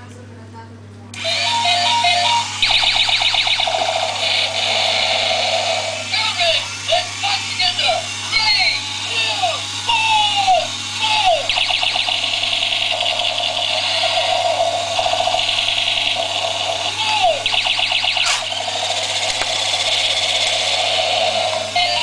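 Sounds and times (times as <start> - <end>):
steady electronic tone: 11.4 - 21.1
rapid rattling pulses: 11.5 - 21.7
falling zap tones: 17.2 - 18.8.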